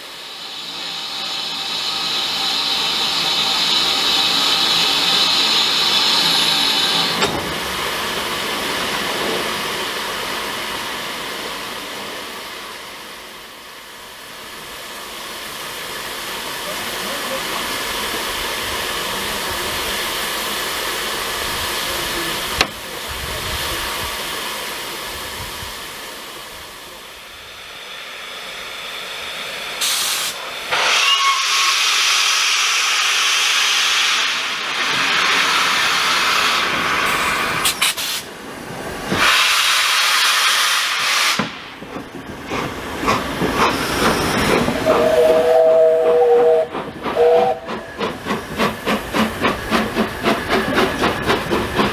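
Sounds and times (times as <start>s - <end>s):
steam locomotive hissing steam: 0.0s - 51.9s
steam locomotive whistle: 29.8s - 33.0s, 44.7s - 47.9s.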